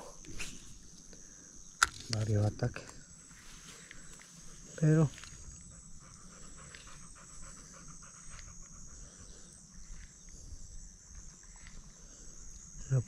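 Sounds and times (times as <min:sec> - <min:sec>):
insects droning: 0:00.0 - 0:13.0
dog panting: 0:04.5 - 0:10.1.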